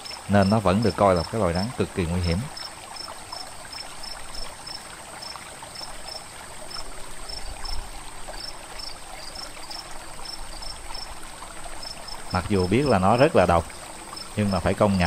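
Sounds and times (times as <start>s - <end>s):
cricket-like chirp: 0.0s - 15.0s
insects trilling: 0.0s - 15.0s
running water hiss: 0.0s - 15.0s.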